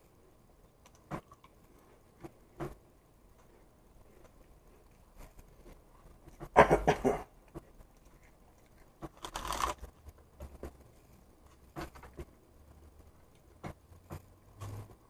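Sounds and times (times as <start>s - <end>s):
plastic tub crinkling: 8.9s - 10.1s.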